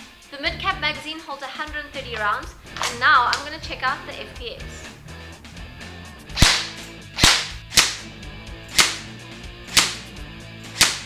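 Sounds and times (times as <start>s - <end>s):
airsoft rifle shots: 6.4s - 8.1s, 8.7s - 9.1s, 9.7s - 10.1s, 10.7s - 11.0s.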